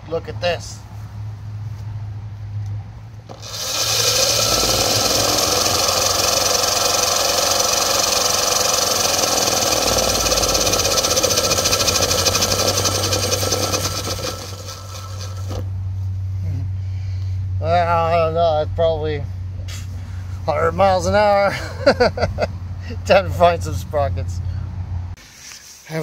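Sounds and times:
electric motor high-pitched whine: 0:03.3 - 0:15.7.

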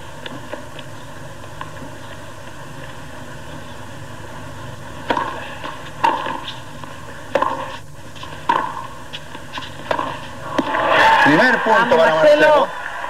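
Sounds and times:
steady background hum: 0:00.0 - 0:13.0
tennis ball hit by rackets: 0:05.0 - 0:06.6, 0:07.3 - 0:10.8.

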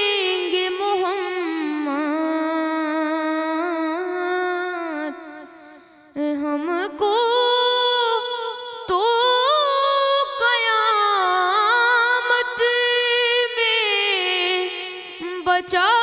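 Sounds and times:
boy singing into a microphone: 0:00.0 - 0:16.0.

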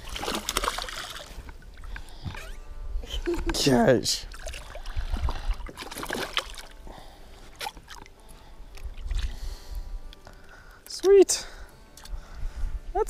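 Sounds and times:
fish splashing in water: 0:00.0 - 0:01.3, 0:04.3 - 0:06.7.

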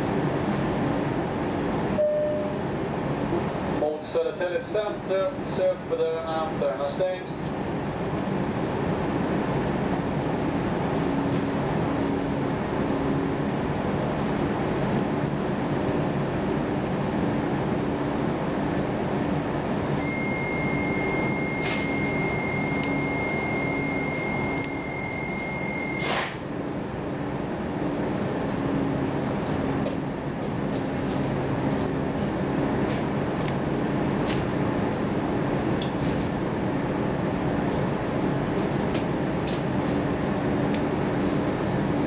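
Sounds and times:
train interior rumble: 0:00.0 - 0:42.0
high electronic beep: 0:02.0 - 0:02.6, 0:20.0 - 0:26.1.

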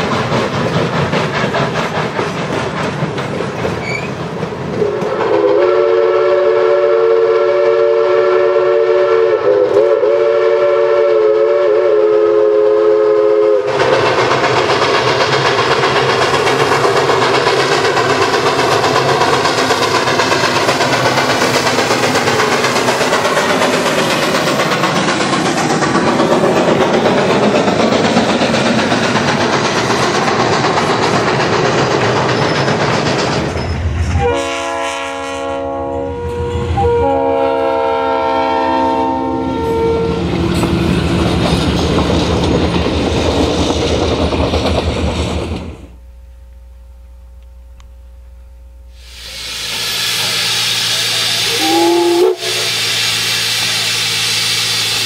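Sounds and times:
steam locomotive passing: 0:00.0 - 0:46.1, 0:48.9 - 0:55.0
steam whistle chord: 0:04.8 - 0:13.8, 0:34.1 - 0:40.2, 0:48.9 - 0:55.0.

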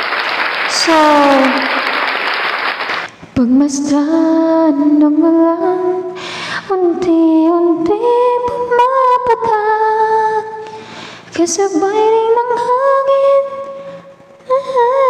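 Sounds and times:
singer breathing in: 0:06.2 - 0:06.7, 0:10.7 - 0:11.3.

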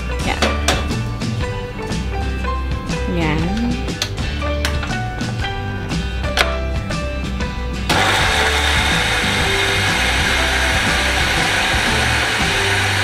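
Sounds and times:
electric blender grinding bread: 0:07.9 - 0:13.0.

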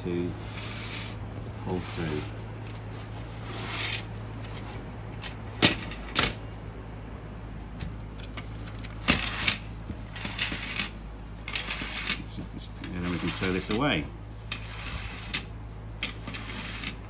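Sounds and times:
cleaning cloth rustling: 0:00.3 - 0:05.5.

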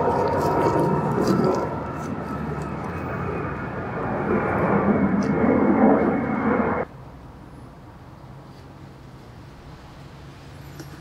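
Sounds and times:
loud engine-like rushing noise: 0:00.0 - 0:06.9.

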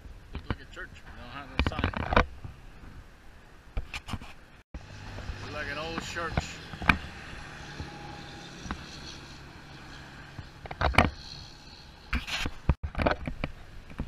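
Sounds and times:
rustles: 0:00.0 - 0:07.1
road traffic rumble: 0:04.4 - 0:14.0.

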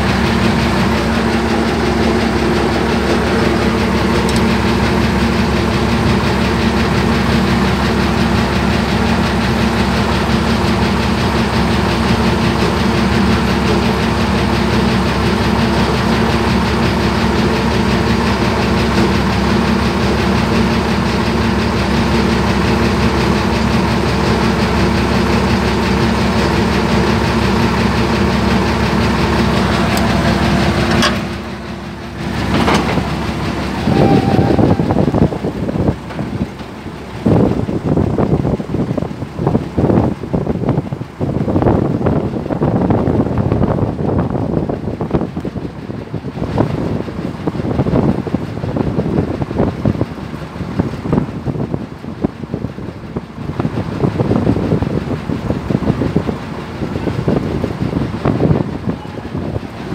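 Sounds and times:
steady whine: 0:00.0 - 0:40.8
diesel engine running: 0:00.0 - 0:59.9.

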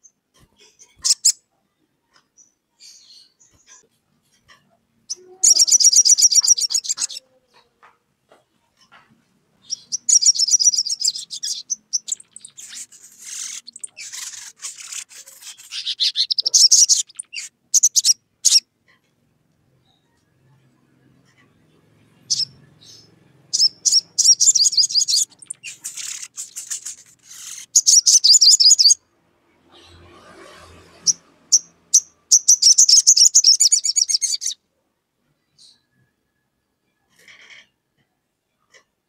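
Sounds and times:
bird trilling and chipping: 0:00.4 - 0:01.4, 0:02.4 - 0:07.7, 0:09.6 - 0:18.7, 0:22.2 - 0:29.0, 0:30.9 - 0:34.6.

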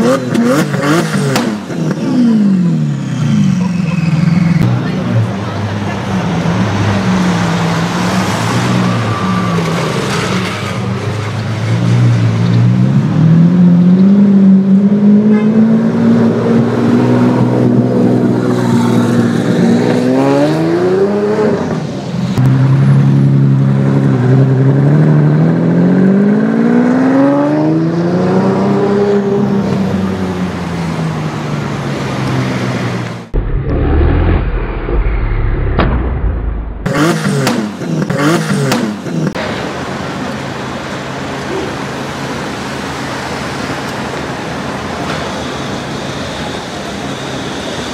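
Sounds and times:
car engine accelerating: 0:00.0 - 0:43.3
deep steady engine rumble: 0:33.2 - 0:36.9.

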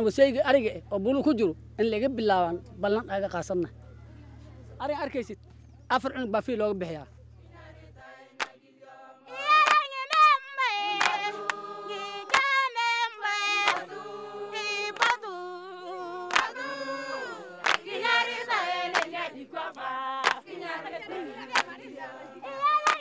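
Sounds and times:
group of voices singing: 0:07.4 - 0:23.0.

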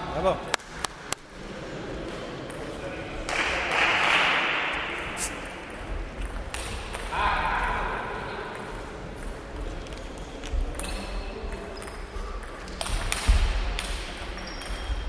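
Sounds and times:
table tennis ball hits: 0:11.8 - 0:14.9.

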